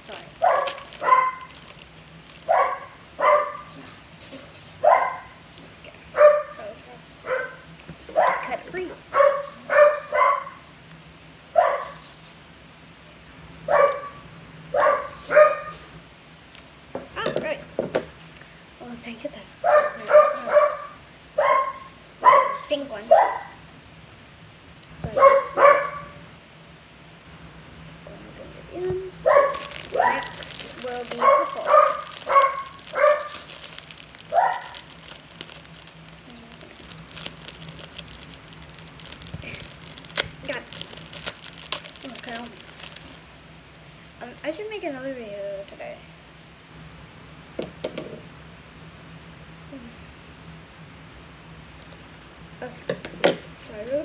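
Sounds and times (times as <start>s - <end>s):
plastic package crinkling: 0.0s - 3.7s, 29.3s - 43.3s
dog barking: 0.4s - 1.5s, 2.5s - 3.7s, 4.8s - 5.4s, 6.1s - 10.7s, 11.5s - 12.0s, 13.7s - 15.9s, 19.6s - 23.6s, 25.1s - 26.2s, 29.2s - 30.4s, 31.2s - 33.6s, 34.3s - 34.9s.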